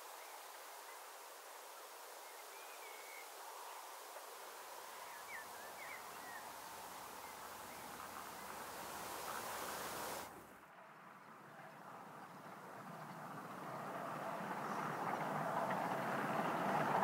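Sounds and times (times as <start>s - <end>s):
small birds chirping: 0.0s - 10.3s
steady hiss: 0.0s - 10.6s.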